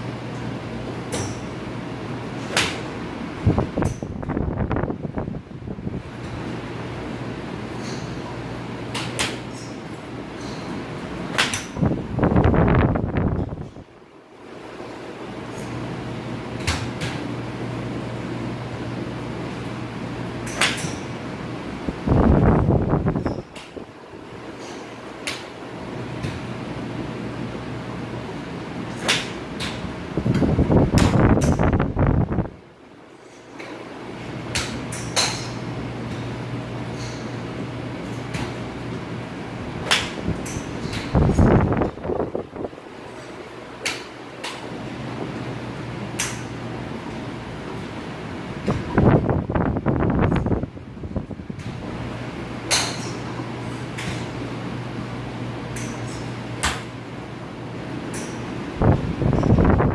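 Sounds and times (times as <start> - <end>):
steady low hum: 0.0 - 59.9
golf clubs striking balls: 1.0 - 1.6, 2.2 - 3.0, 7.7 - 12.4, 20.4 - 21.2, 24.5 - 25.6, 28.8 - 31.7, 34.4 - 39.1, 39.8 - 42.0, 43.1 - 44.8, 46.1 - 46.6, 52.6 - 54.4, 55.7 - 56.9.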